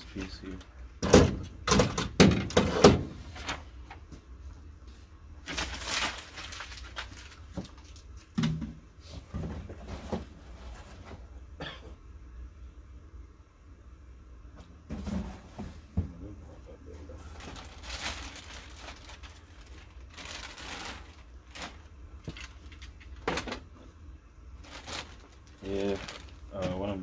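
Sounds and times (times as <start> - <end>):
plastic printer parts clunking: 1.0 - 3.6, 21.6 - 23.8
rustling packaging: 5.4 - 8.4, 17.1 - 23.7, 24.5 - 27.0.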